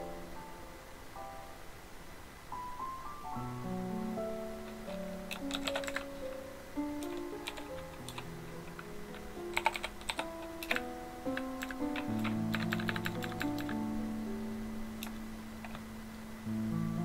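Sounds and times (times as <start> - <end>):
background music of held notes: 2.5 - 17.0
computer keyboard typing: 4.7 - 6.2, 7.0 - 13.8, 15.0 - 15.8.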